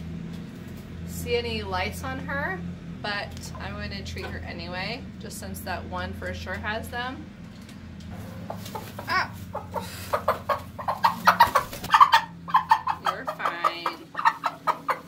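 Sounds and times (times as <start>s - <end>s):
hen clucking and squawking: 8.1s - 15.0s.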